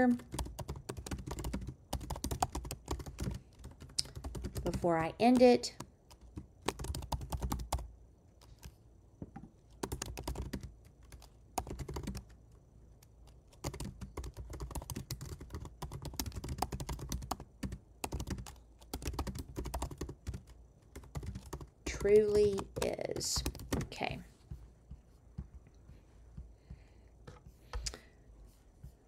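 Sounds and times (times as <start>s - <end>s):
typing on computer keyboard: 0.0s - 8.8s, 9.7s - 12.4s, 13.0s - 24.0s.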